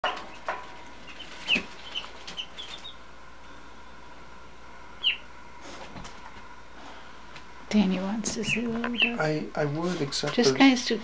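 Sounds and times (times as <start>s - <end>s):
duckling peeping: 0.0s - 3.1s, 5.0s - 5.3s, 8.3s - 9.3s.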